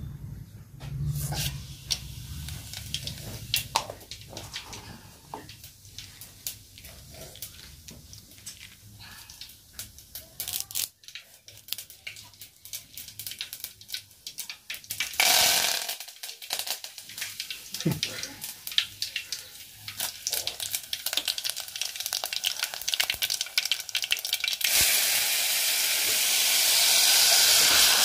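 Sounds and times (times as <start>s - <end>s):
faint low hum: 0.0s - 5.2s
loud hiss: 24.7s - 28.0s.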